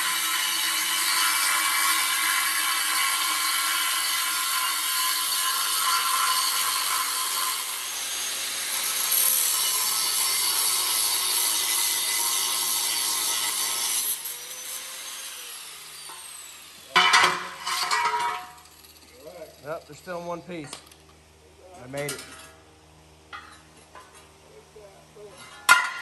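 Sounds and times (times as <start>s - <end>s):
angle grinder cutting metal: 0.0s - 20.4s
sharp metal clank: 16.9s - 18.7s.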